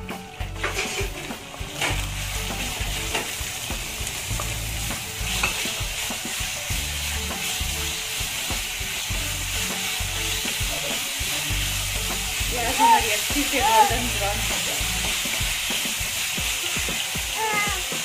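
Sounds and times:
onions sizzling in hot oil: 0.0s - 18.0s
wooden spatula scraping a pan: 0.6s - 9.0s.

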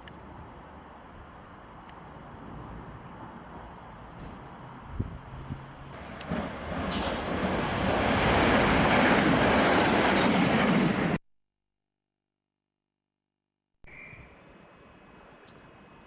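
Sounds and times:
train passing at speed: 0.3s - 11.2s.

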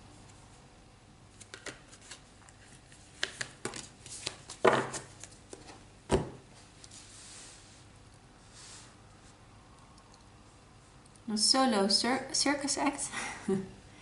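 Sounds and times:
cards clicking on wooden table: 1.4s - 1.9s, 3.2s - 5.1s.

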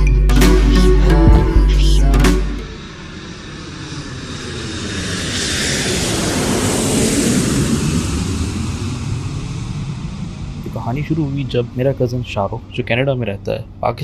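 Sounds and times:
rushing air: 2.4s - 12.9s
jet engine roar: 2.4s - 14.0s.

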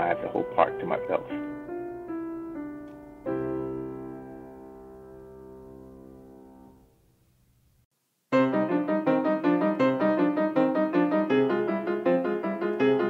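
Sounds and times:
piano music: 0.0s - 7.0s, 8.3s - 13.0s.

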